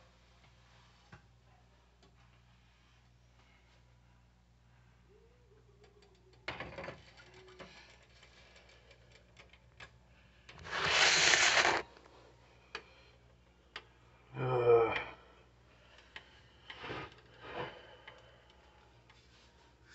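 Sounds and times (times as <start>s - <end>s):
short rustle: 10.6s - 11.9s
loud hiss: 10.7s - 11.8s.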